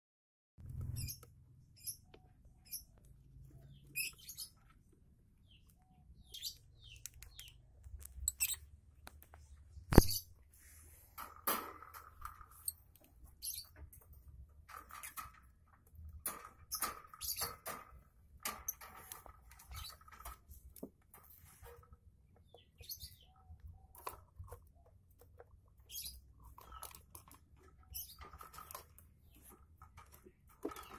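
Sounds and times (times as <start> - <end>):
lovebirds chirping: 0.8 - 10.9, 13.3 - 13.8, 21.4 - 30.9.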